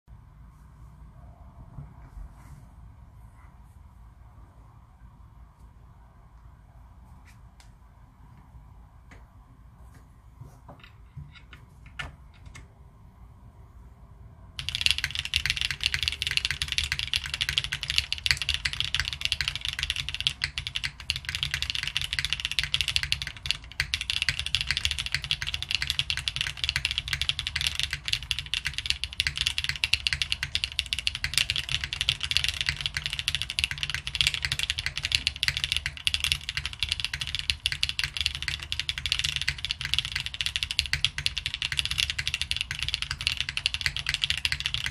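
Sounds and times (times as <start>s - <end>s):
mechanical keyboard typing: 14.6s - 44.9s.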